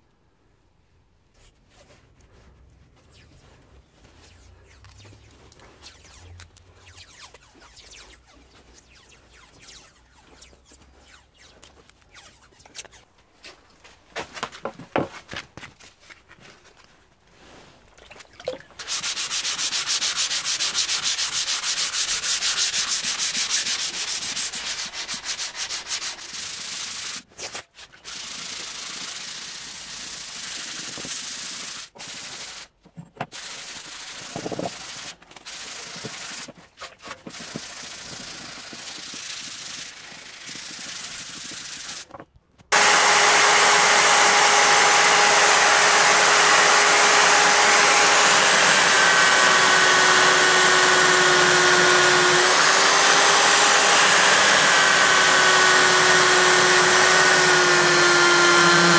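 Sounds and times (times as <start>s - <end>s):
sandpaper rubbing on metal blade: 3.0s - 13.6s, 18.8s - 32.7s, 33.3s - 42.1s
electric drill running: 42.7s - 58.9s.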